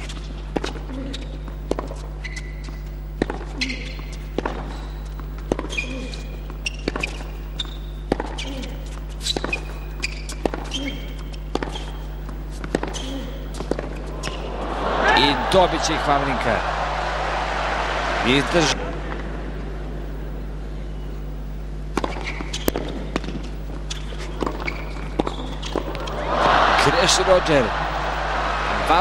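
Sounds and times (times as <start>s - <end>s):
shoe squeaks: 1.0s - 3.0s, 3.6s - 14.4s, 22.1s - 22.8s, 23.8s - 25.9s
tennis ball bouncing: 2.7s - 14.6s, 21.9s - 26.2s.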